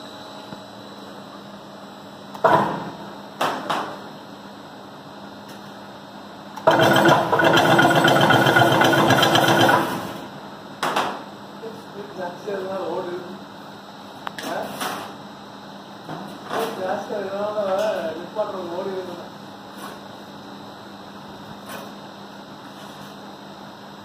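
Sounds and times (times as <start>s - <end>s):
machine rattling loudly: 6.6s - 10.3s.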